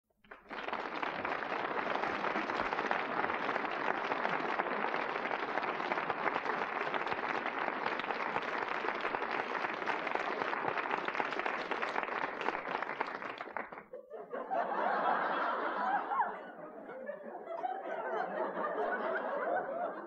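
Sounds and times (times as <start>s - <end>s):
audience applause: 0.2s - 13.9s.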